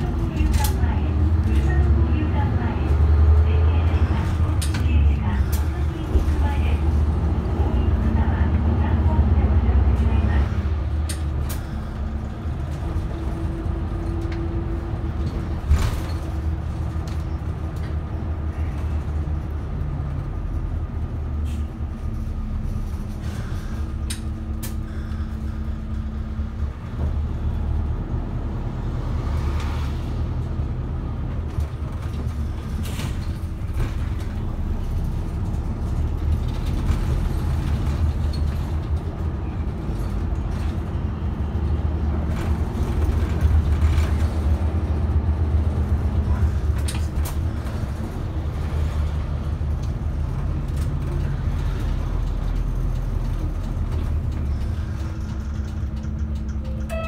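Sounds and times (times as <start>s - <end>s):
bus engine and road rumble: 0.0s - 57.0s
bus fittings clicking and rattling: 10.9s - 27.1s, 31.3s - 41.0s, 41.6s - 57.0s.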